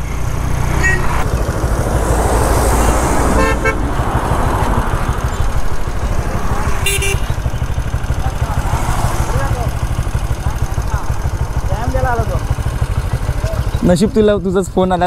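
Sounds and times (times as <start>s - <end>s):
motorcycle engine running: 0.0s - 15.0s
vehicle horn toots: 0.7s - 1.2s, 2.8s - 3.8s, 6.8s - 7.8s.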